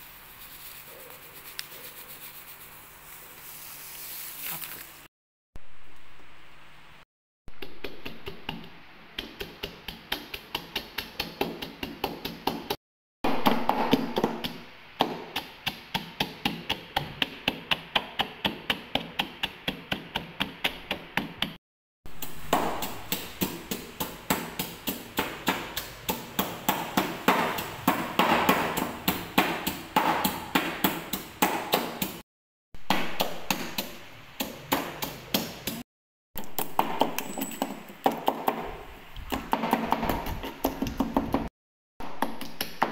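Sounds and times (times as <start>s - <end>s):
wooden pestle pounding in mortar: 7.5s - 32.2s, 32.8s - 35.8s, 36.4s - 42.9s.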